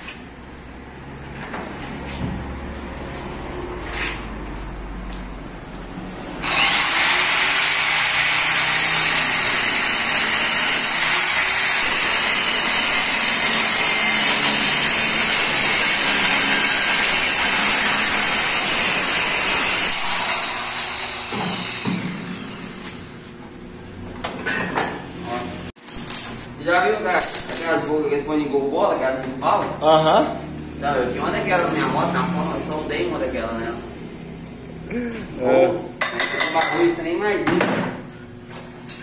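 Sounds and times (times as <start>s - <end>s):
angle grinder grinding metal: 6.4s - 23.1s.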